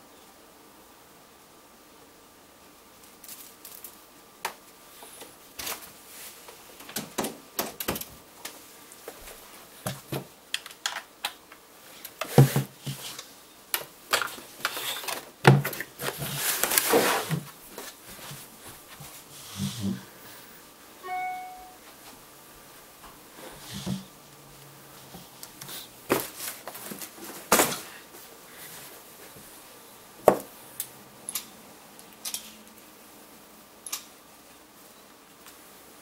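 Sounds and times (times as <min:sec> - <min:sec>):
electronic tones: 0:21.0 - 0:21.8.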